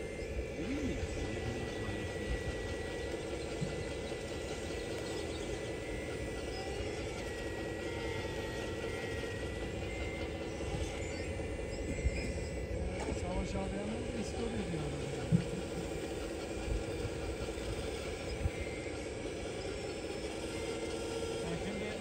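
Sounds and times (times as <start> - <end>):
thin high whine: 0.0 - 22.0
toy excavator motors whining: 0.0 - 22.0.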